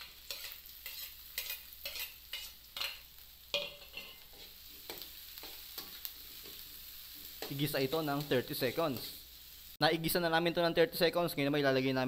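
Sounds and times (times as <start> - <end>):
metal spoon scraping a wok: 0.0 - 6.6
vegetables sizzling in oil: 0.0 - 10.1.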